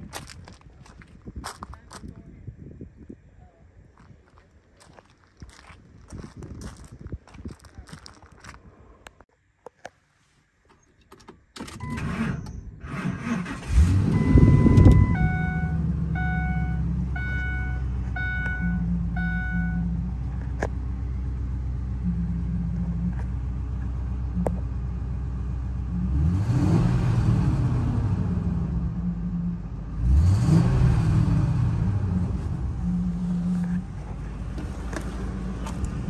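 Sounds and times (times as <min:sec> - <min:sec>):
pickup engine cranking and idling: 0:11.1 - 0:26.2, 0:31.3 - 0:36.0
engine revving: 0:11.9 - 0:23.4, 0:25.4 - 0:36.0
dash warning chime beeping: 0:14.1 - 0:20.0.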